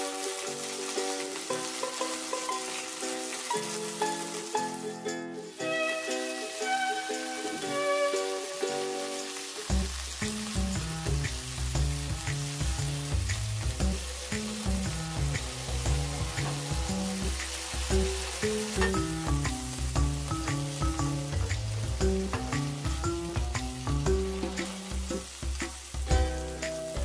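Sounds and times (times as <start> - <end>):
prawns sizzling in hot oil: 0.0 - 27.0
spatula turning food in pan: 0.0 - 27.0
background music with bass line: 9.7 - 27.0.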